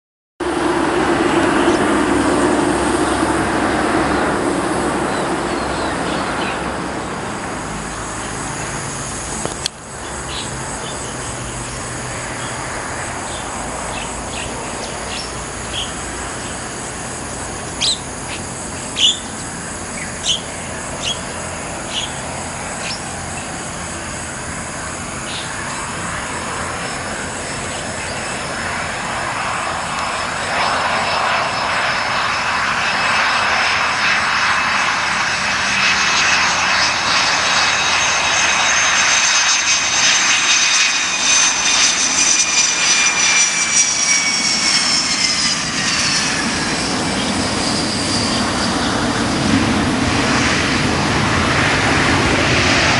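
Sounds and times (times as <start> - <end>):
jet airliner approaching: 0.4 - 52.9
birds chirping: 5.0 - 6.8, 9.9 - 16.8, 17.6 - 24.1, 24.8 - 28.9.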